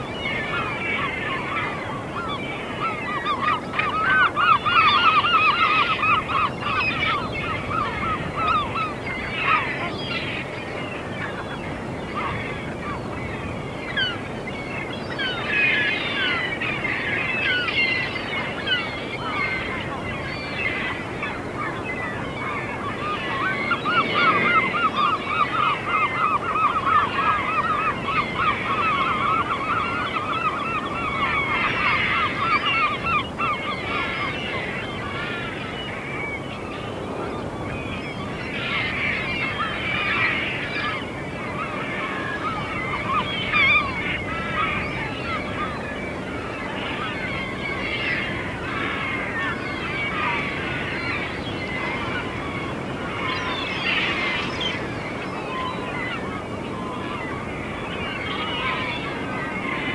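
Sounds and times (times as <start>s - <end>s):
flock of gulls calling: 0.0s - 59.9s
gull rapidly repeated calls: 22.4s - 34.4s.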